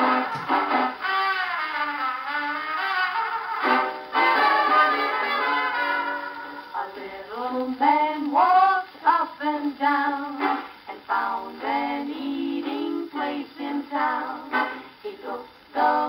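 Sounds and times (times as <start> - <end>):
women singing on gramophone record: 4.3 - 16.0.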